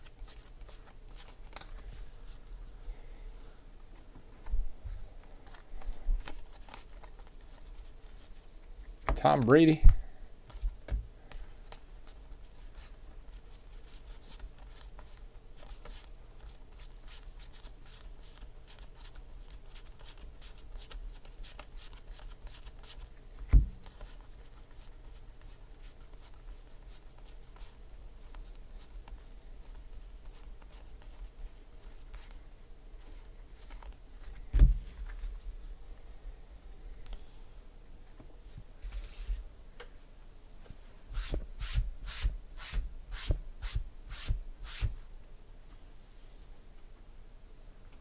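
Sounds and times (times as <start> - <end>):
cards being flipped through: 0.0 - 1.9, 5.4 - 7.8, 38.8 - 39.4
low steady hum: 0.0 - 48.0.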